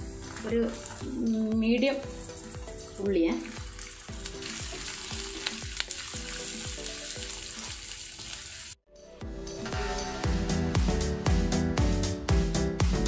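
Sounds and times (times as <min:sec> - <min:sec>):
onions sizzling in oil: 0:00.0 - 0:08.8
background music with a beat: 0:08.9 - 0:13.0.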